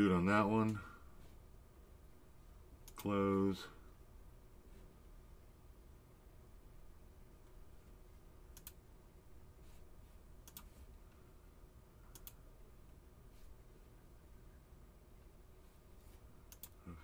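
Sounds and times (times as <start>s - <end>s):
low room hum: 0.0s - 17.0s
computer mouse clicks: 8.5s - 8.8s, 10.4s - 10.8s, 12.1s - 12.4s, 16.5s - 16.8s.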